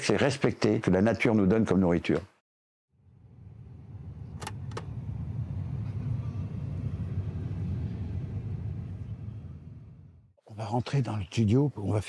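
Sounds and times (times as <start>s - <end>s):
low rumble: 3.0s - 10.4s.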